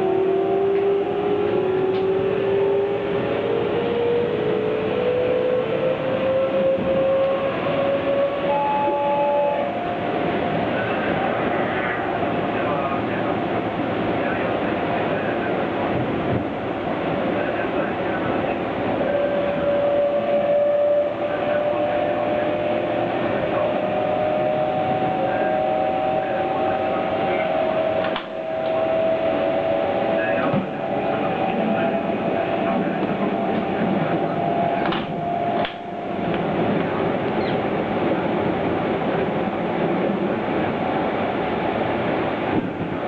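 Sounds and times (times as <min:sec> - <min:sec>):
train wheels rumbling: 0:00.0 - 0:43.0
electric train motor whine: 0:19.5 - 0:37.4.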